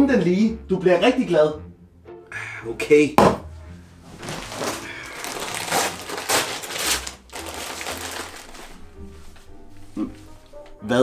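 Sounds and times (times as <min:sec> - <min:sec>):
wrapping paper rustling and tearing: 0:04.1 - 0:09.3.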